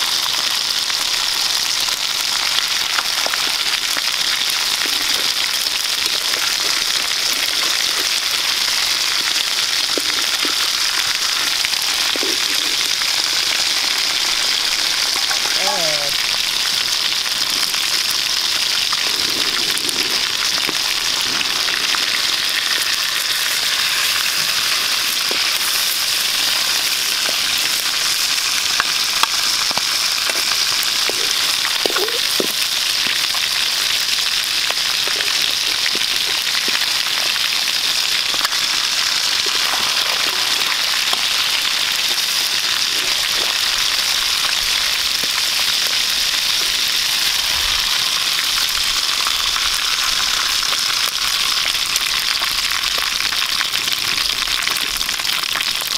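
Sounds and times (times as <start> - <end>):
fish frying in hot oil: 0.0 - 55.9.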